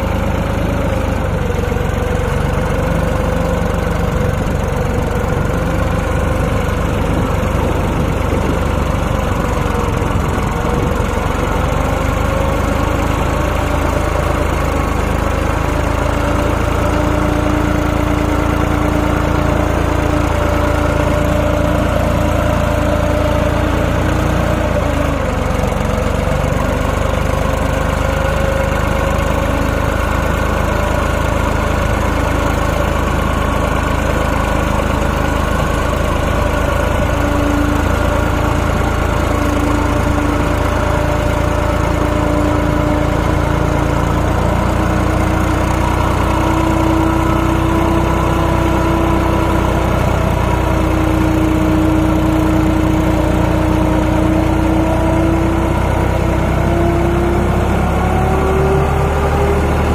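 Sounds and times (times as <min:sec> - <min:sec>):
tractor diesel engine under load: 0:00.0 - 0:59.9
wheels spinning in mud: 0:00.0 - 0:59.9.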